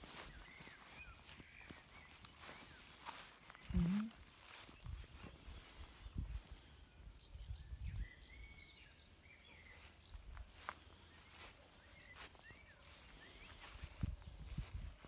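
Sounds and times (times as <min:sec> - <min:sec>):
soft footsteps: 0:00.0 - 0:06.5, 0:09.6 - 0:15.0
birds chirping: 0:00.0 - 0:15.0.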